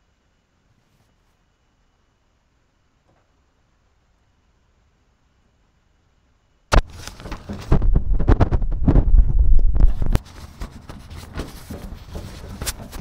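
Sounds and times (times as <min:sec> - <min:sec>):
low rumble: 0:06.7 - 0:10.2.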